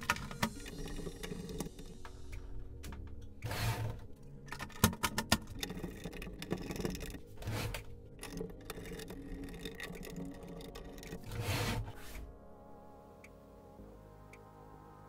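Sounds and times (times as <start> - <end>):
tool scraping against casing: 3.4 - 12.2.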